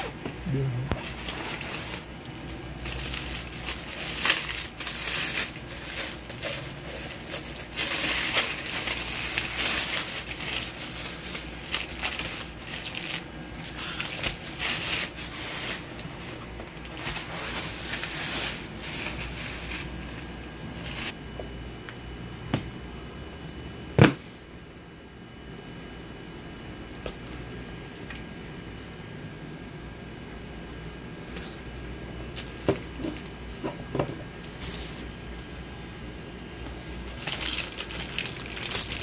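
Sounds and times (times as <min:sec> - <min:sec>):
tissue paper crinkling: 0:01.0 - 0:21.2, 0:37.0 - 0:39.0.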